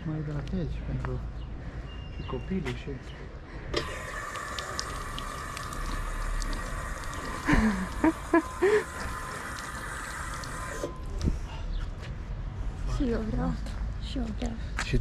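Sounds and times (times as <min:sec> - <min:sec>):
drinking fountain water running: 0:03.8 - 0:11.2.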